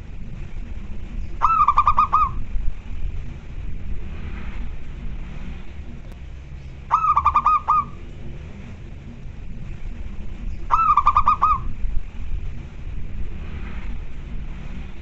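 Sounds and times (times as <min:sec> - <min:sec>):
dove cooing: 0:01.4 - 0:02.5, 0:06.9 - 0:08.0, 0:10.7 - 0:11.8.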